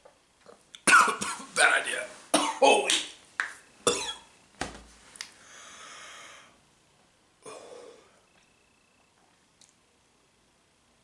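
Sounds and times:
man coughing: 0.9 - 1.5, 2.4 - 2.7.

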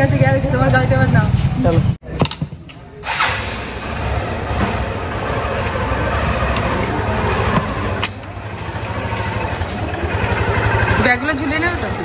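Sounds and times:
vehicle rumble and hiss: 2.7 - 12.0.

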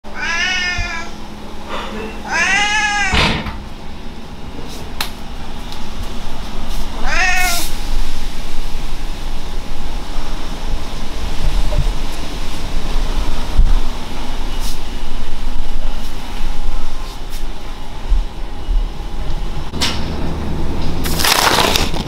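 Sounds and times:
cat meowing: 0.1 - 1.2, 2.2 - 3.2, 7.0 - 7.8
low rumbling noise: 0.1 - 22.0.

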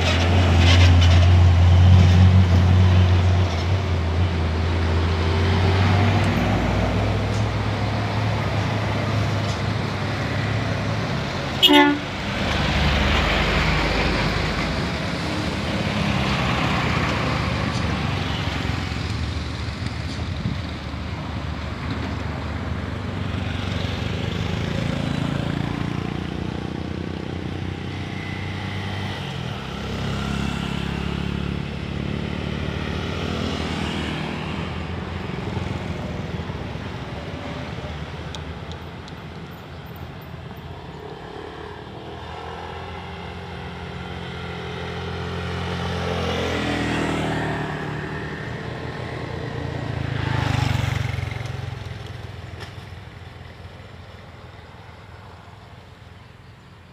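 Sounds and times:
vehicles passing: 0.0 - 56.9
small car passing: 23.1 - 38.1, 40.4 - 52.8
motorcycle passing: 23.2 - 35.7, 41.1 - 52.2.

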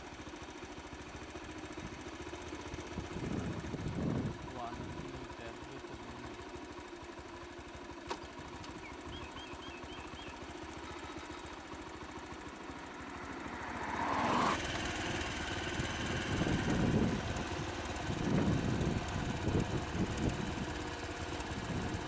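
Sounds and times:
vehicle engine idling: 0.0 - 22.0
uneven low rumbling: 3.0 - 5.0.

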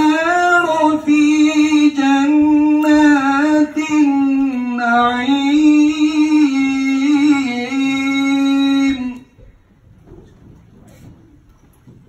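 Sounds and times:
man chanting melodically: 0.0 - 9.4.

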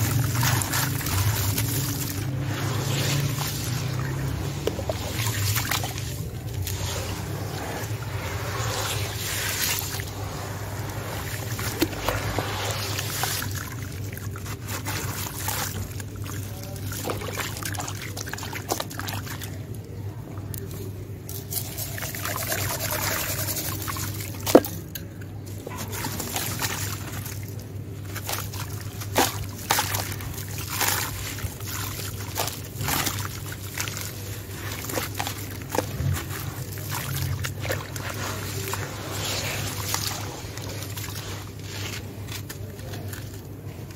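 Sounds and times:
water trickling and pouring: 0.0 - 19.3
hands sloshing through slurry: 0.0 - 43.9
low steady hum: 0.0 - 43.9.

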